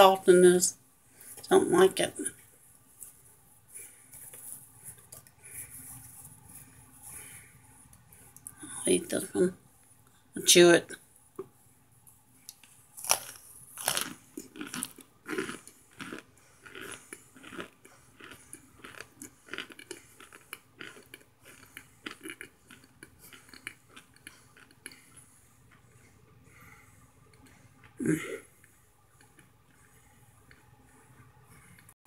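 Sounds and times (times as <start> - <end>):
person crunching food: 12.5 - 25.3.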